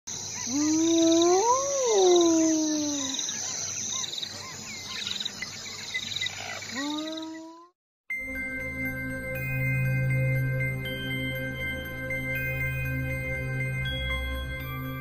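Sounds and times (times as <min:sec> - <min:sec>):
animal howl: 0:00.4 - 0:03.6.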